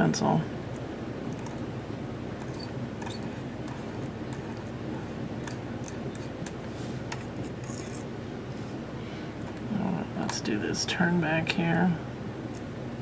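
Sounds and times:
low room hum: 0:00.0 - 0:13.0
pen scratching on glass: 0:02.4 - 0:06.5.

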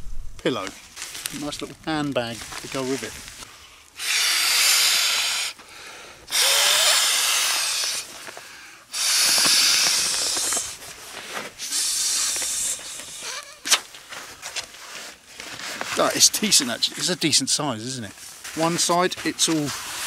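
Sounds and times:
hissing breaths into pillow valve: 0:03.4 - 0:10.9, 0:11.5 - 0:13.6.

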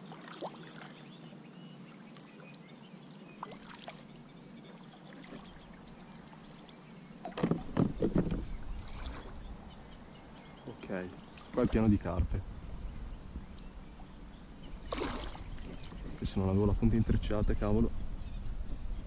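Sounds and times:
paddle splashing water: 0:00.0 - 0:01.1, 0:03.4 - 0:09.5, 0:11.2 - 0:11.8, 0:14.8 - 0:16.2.

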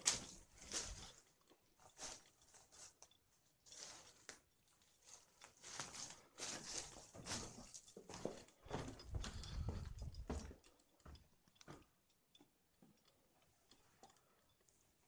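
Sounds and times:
footsteps crunching on stone rubble: 0:00.0 - 0:01.2, 0:05.6 - 0:11.2.

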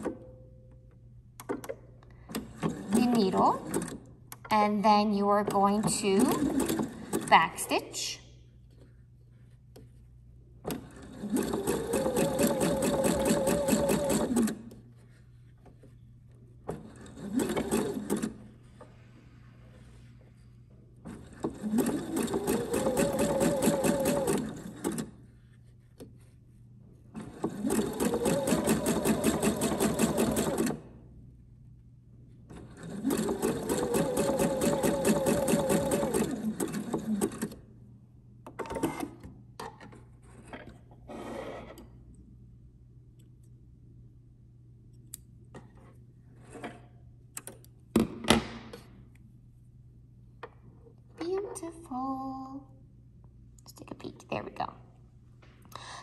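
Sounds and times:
sewing machine motor whine: 0:32.8 - 0:37.6.

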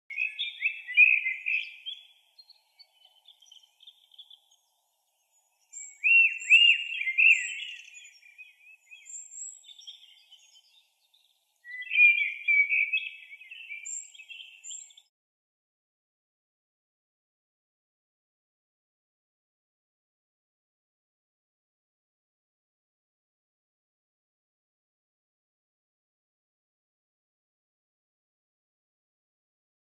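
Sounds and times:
birds chirping and calling: 0:00.1 - 0:15.1.

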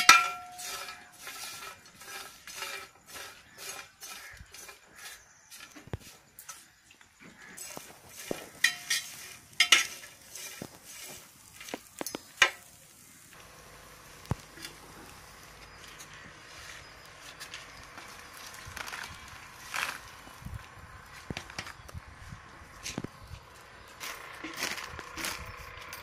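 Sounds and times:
metal spoon clinking and scraping: 0:00.0 - 0:06.8, 0:07.5 - 0:12.7
faint steady hiss: 0:07.4 - 0:22.0.

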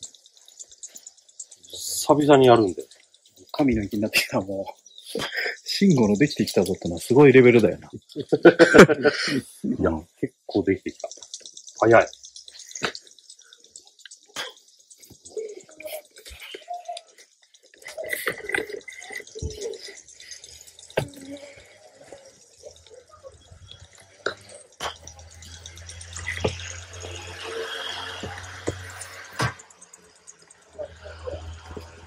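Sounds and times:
golf clubs striking balls: 0:24.2 - 0:27.4.

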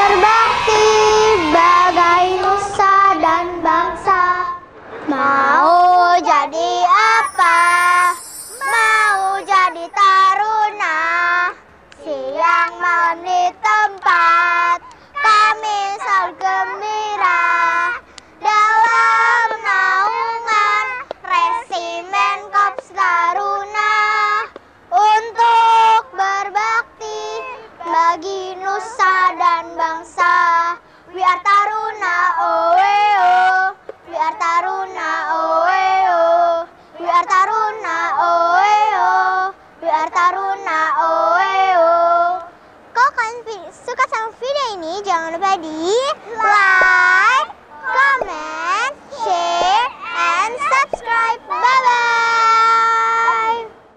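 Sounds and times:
children singing together: 0:00.0 - 0:10.8.

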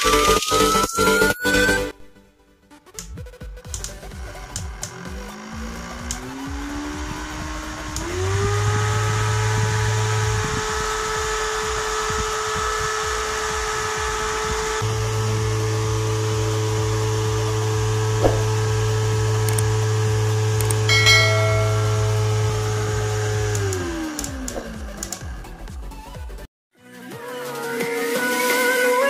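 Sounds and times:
table fan motor whine: 0:04.1 - 0:25.6
low hum: 0:05.3 - 0:25.8.

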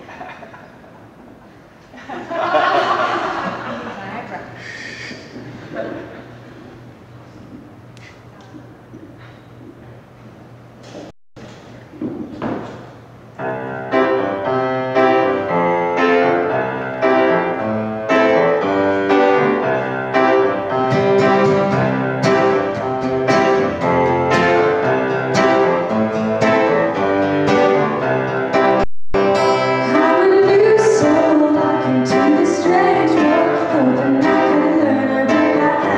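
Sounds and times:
grand piano playing chords: 0:13.2 - 0:35.9.

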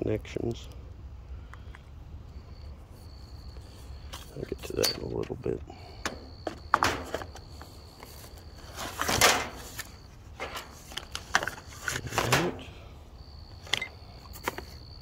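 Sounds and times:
cardboard packaging handling: 0:06.8 - 0:12.6
paper rustling: 0:06.8 - 0:12.6.

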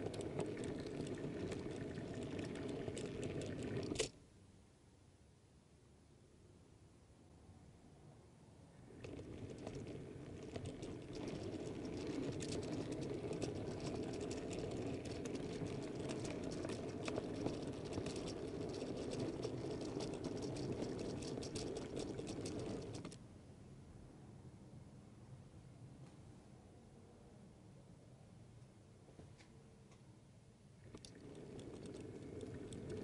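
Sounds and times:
model train rolling on track: 0:00.0 - 0:04.1, 0:08.8 - 0:23.2, 0:30.8 - 0:33.0.

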